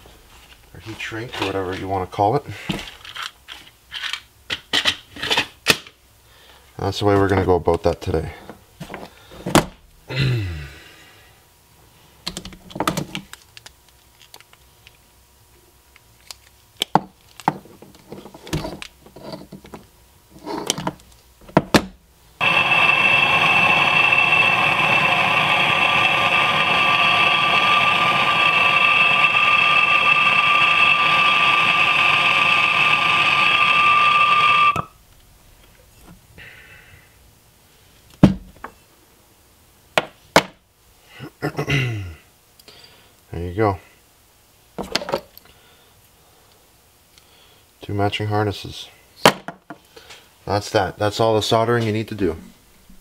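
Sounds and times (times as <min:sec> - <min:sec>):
propane torch hissing: 0:22.4 - 0:35.0.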